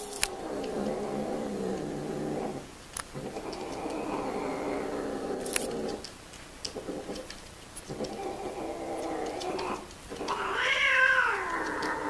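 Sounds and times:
cat yowling: 8.2 - 12.0.

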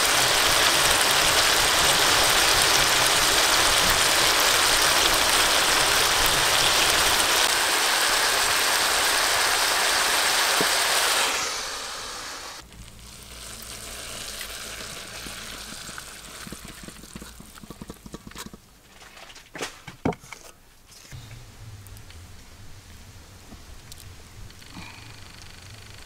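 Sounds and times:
vegetables sizzling in a wok: 0.0 - 18.3.

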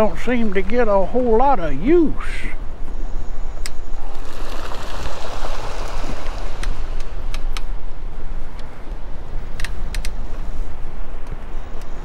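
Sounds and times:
wind buffeting microphone: 0.0 - 12.0
water birds pattering across water: 4.0 - 7.5.

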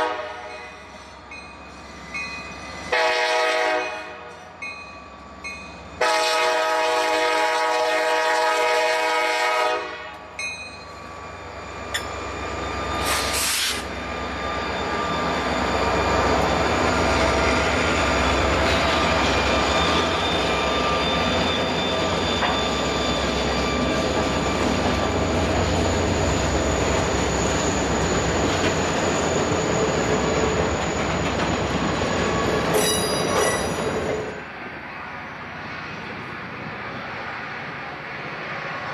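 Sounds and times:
locomotive horn blast: 0.0 - 0.8, 2.9 - 4.3, 6.0 - 10.3
diesel locomotive engines: 0.0 - 38.9
freight cars rumbling on rails: 0.0 - 38.9
wheel squeal: 11.5 - 34.2.

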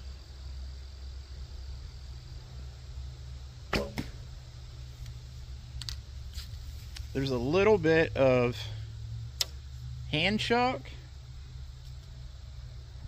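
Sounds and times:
steady low hum: 0.0 - 13.0
arrow striking target: 3.7 - 4.3.

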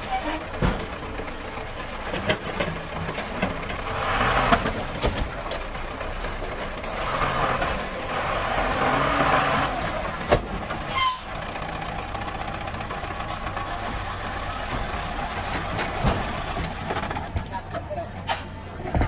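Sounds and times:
diesel engine running: 0.0 - 19.0
brief squeal: 10.9 - 11.3.

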